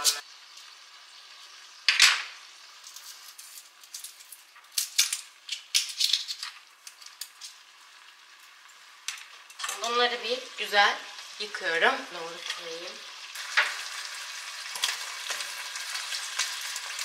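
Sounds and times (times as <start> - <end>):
shallot skins crackling and rustling: 2.8 - 7.7.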